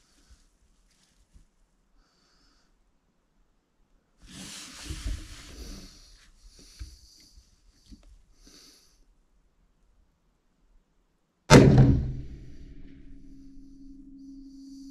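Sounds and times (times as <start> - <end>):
clothing rustle and handling noise: 0.0 - 1.8, 4.2 - 6.7
faint breaths: 1.9 - 3.0, 4.2 - 9.2, 12.4 - 14.9.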